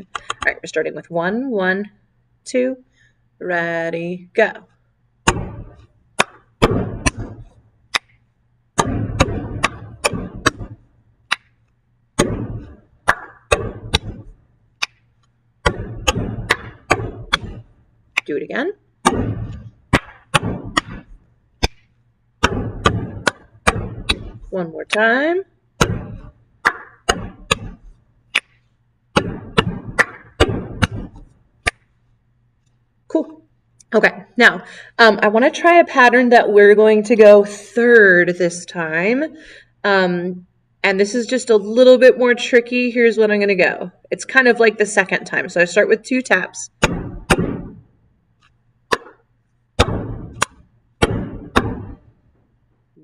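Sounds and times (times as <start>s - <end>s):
hand claps: 13.1s - 13.5s.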